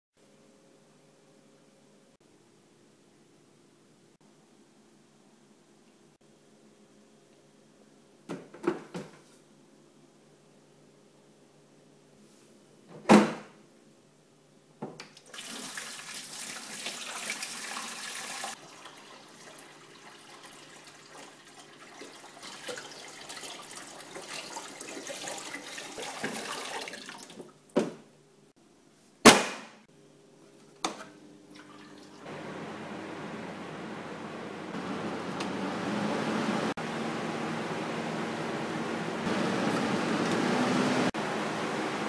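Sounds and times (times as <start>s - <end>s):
water pouring into tank: 15.2s - 27.5s.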